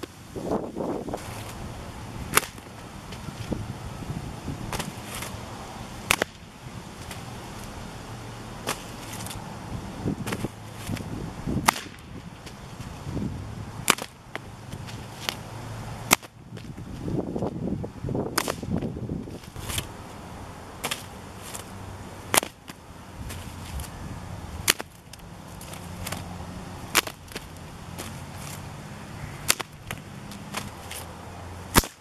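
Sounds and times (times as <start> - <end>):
whip cracking: 2.3 - 2.7, 6.0 - 6.4, 11.6 - 12.1, 18.3 - 18.8, 29.4 - 31.1, 31.7 - 32.0.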